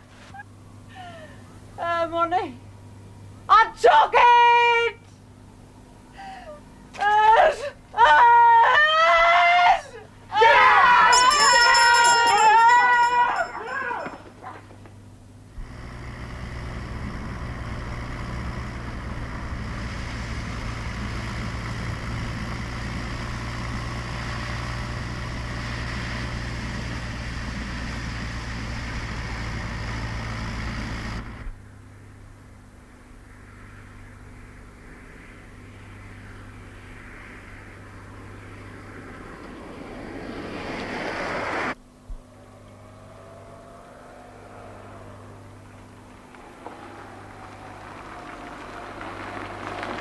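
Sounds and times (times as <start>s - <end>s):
quiet steady hum: 0.0s - 50.0s
vehicle engine running: 14.8s - 50.0s.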